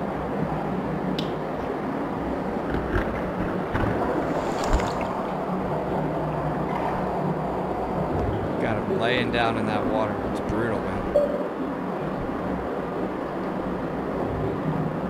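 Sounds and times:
water sloshing and splashing: 0:02.9 - 0:07.4.

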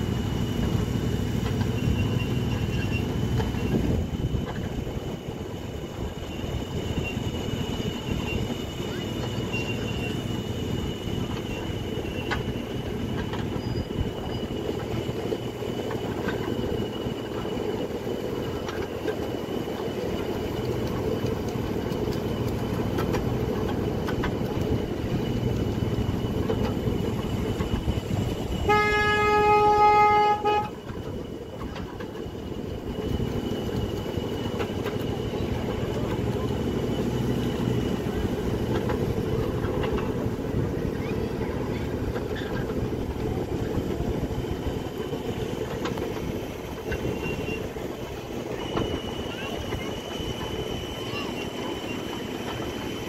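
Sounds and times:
faint high whine: 0:00.0 - 0:53.0
miniature train rumbling on track: 0:00.0 - 0:53.0
train horn: 0:28.6 - 0:30.9.

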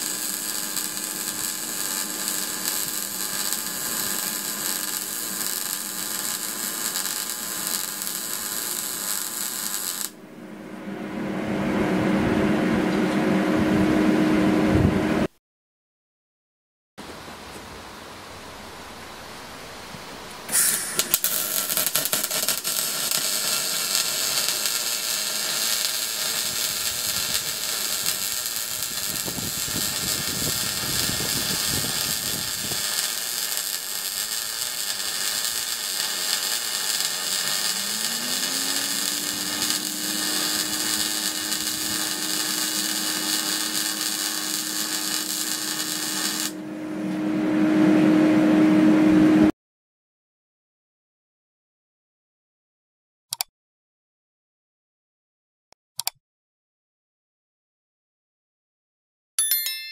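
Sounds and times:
welding arc hissing: 0:00.0 - 0:10.2, 0:20.5 - 0:46.6.

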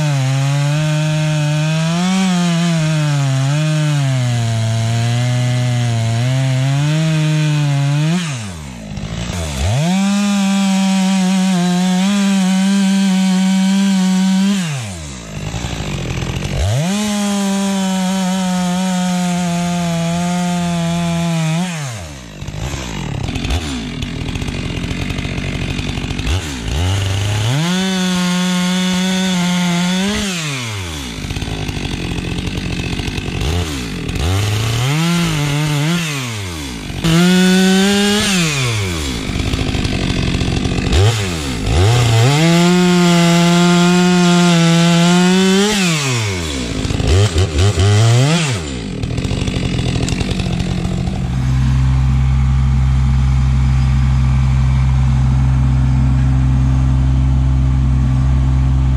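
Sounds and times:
chainsaw cutting logs: 0:00.0 - 0:58.9
tractor diesel engine running: 0:22.4 - 0:27.3, 0:31.1 - 0:35.9, 0:36.7 - 0:42.3, 0:48.8 - 0:58.9.

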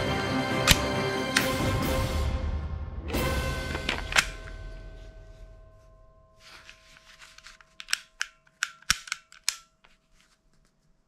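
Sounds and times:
plastic toy pistols clicking: 0:00.7 - 0:01.5, 0:07.6 - 0:09.8.

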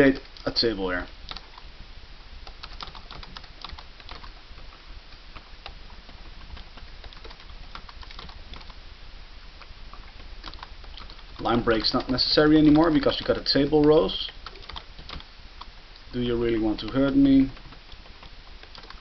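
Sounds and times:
low steady hum: 0:00.0 - 0:19.0
typing on keyboard: 0:01.3 - 0:01.6, 0:02.4 - 0:04.7, 0:05.3 - 0:08.8, 0:09.9 - 0:15.7, 0:16.4 - 0:19.0.

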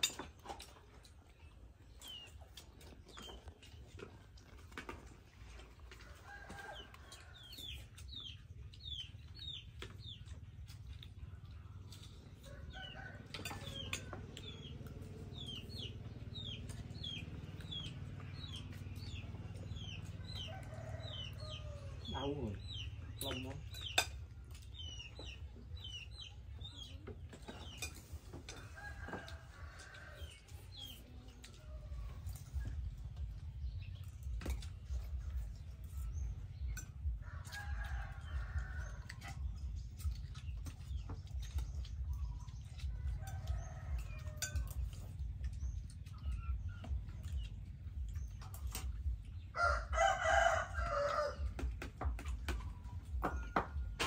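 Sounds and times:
rooster crowing: 0:49.6 - 0:51.5.

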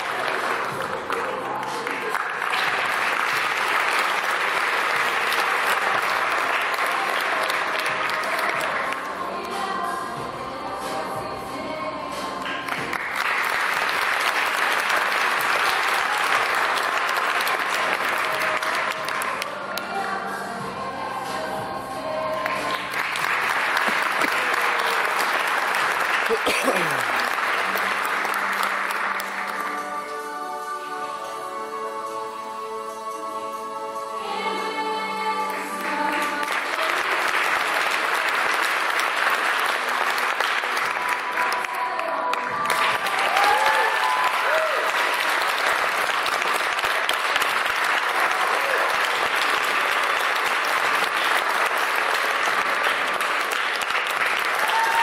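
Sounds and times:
audience applauding: 0:00.0 - 0:09.1, 0:12.4 - 0:19.9, 0:22.4 - 0:30.0, 0:35.5 - 0:55.0.

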